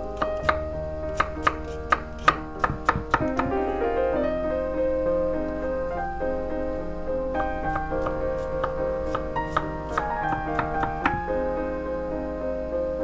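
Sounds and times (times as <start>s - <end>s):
soft piano music: 0.0s - 13.0s
knife chopping on wooden board: 1.2s - 3.6s, 7.6s - 11.2s.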